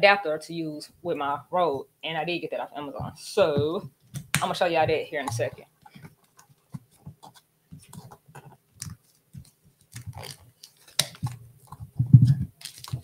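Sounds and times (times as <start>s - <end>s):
packaging scratching and crinkling: 5.2s - 13.0s.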